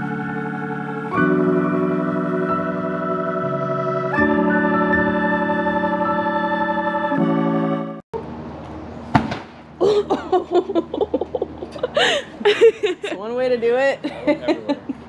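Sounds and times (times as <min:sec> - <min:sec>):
organ-like keyboard chords: 0:00.0 - 0:08.1
people talking: 0:09.8 - 0:15.0.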